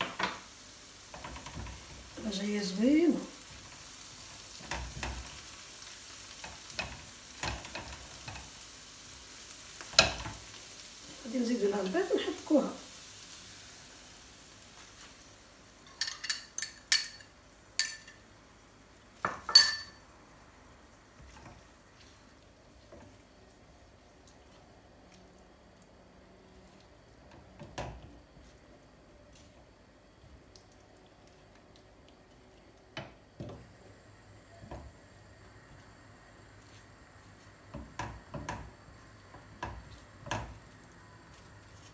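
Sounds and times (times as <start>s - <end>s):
faint frying hiss: 0.0s - 41.9s
metal utensils clinking on dishes: 15.9s - 18.2s, 19.5s - 20.0s.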